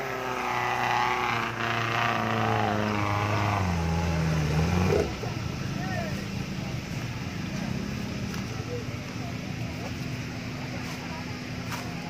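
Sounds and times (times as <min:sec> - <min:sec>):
off-road vehicle engine labouring: 0:00.0 - 0:12.0.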